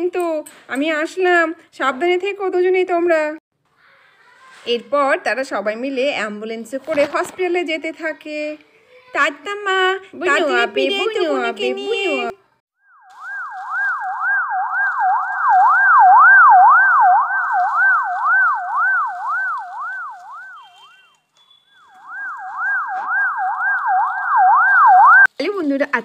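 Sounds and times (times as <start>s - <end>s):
ambulance siren wailing: 12.9s - 25.3s.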